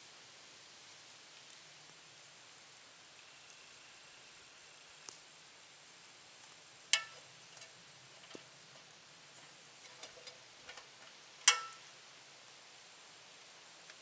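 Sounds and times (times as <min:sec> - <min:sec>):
faint metallic ticks: 0:06.4 - 0:11.9
sharp metallic clicks with ring: 0:06.9 - 0:07.7, 0:11.4 - 0:11.9.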